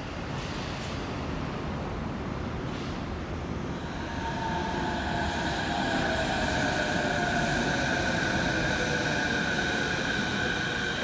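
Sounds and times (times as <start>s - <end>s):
train running noise: 0.0s - 11.0s
monorail train inverter whine: 1.2s - 11.0s.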